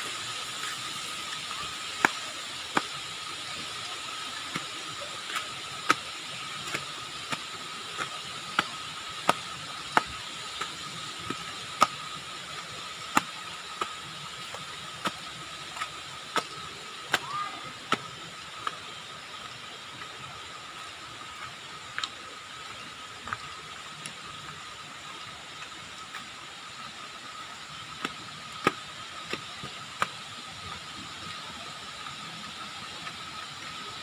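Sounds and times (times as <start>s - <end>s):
steady hiss with high tone: 0.0s - 34.0s
footsteps on concrete steps: 1.4s - 20.2s, 21.4s - 24.2s, 27.8s - 31.4s.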